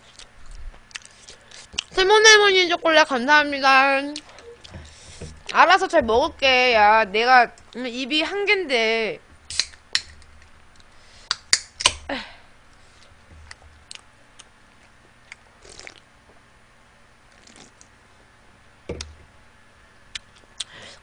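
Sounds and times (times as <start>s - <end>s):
chewing and mouth sounds: 0.0s - 2.0s, 13.5s - 16.1s, 17.3s - 17.9s, 20.1s - 20.8s
sip from a soda can: 17.4s - 17.9s.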